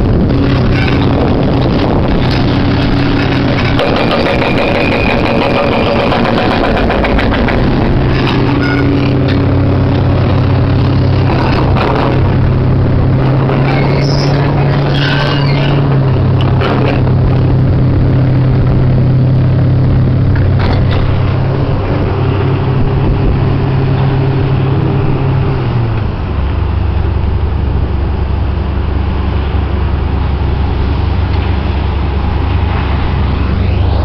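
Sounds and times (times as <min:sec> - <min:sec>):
excavator diesel engine running: 0:00.0 - 0:34.0
hydraulic breaker hammering rock: 0:00.4 - 0:12.4.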